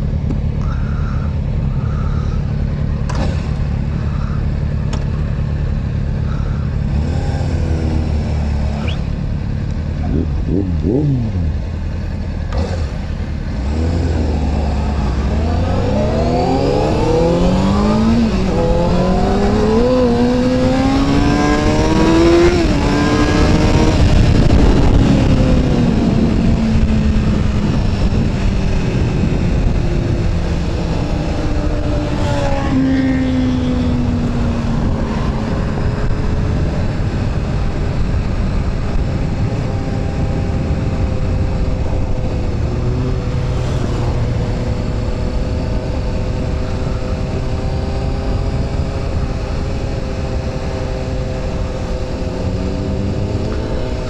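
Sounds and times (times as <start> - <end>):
motorcycle engine revving and accelerating: 2.9 - 54.0
wind noise on microphone: 13.6 - 54.0.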